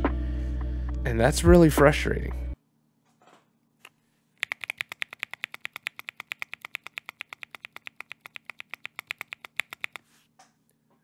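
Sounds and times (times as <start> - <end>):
mechanical keyboard key clicks: 4.4 - 10.0.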